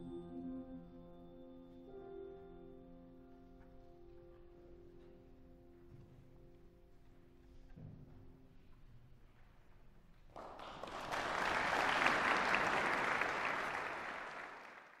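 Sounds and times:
audience applause: 10.3 - 15.0.

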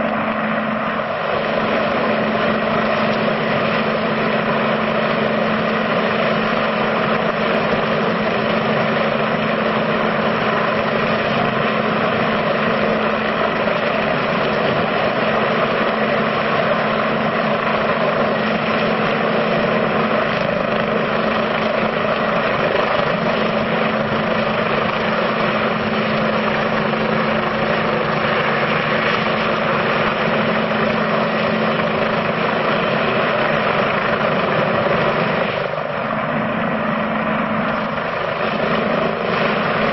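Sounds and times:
helicopter hovering: 0.0 - 39.9.

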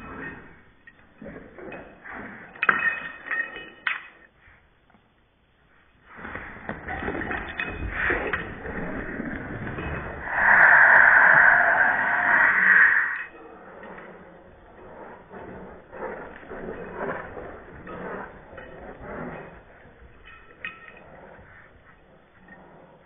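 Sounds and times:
dogs scuffling: 13.2 - 23.0.

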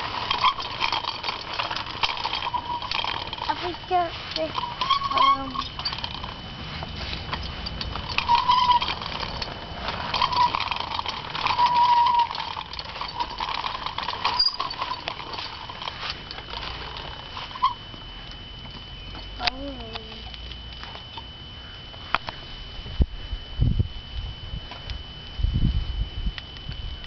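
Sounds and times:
bicycle wheels rattling on concrete: 0.0 - 21.3
short high squeaks: 0.1 - 6.1, 7.4 - 9.5, 10.1 - 15.6, 17.4 - 17.9.

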